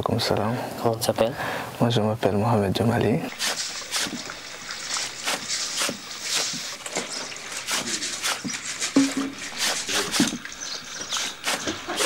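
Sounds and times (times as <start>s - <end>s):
clothes scrubbed in washtub: 3.3s - 12.0s.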